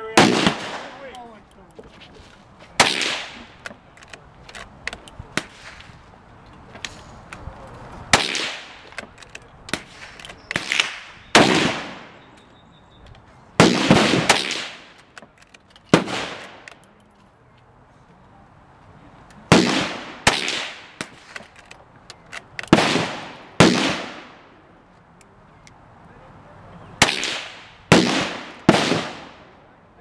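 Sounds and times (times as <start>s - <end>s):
loud rifle shots echoing: 0.2s - 1.1s, 2.8s - 3.5s, 8.1s - 8.8s, 9.8s - 12.2s, 13.6s - 15.0s, 15.9s - 16.6s, 19.5s - 21.4s, 22.7s - 24.5s, 27.0s - 29.5s.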